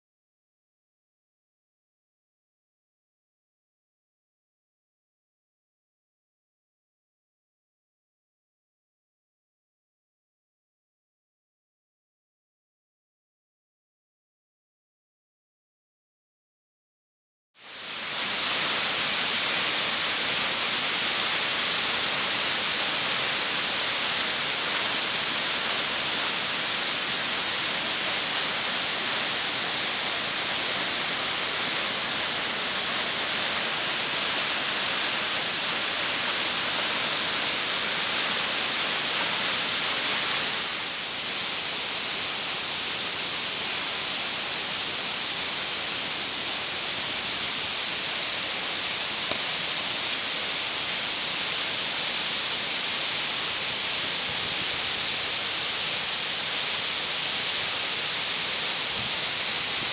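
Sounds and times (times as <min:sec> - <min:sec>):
waterfall rushing onto rocks: 0:17.6 - 0:59.9.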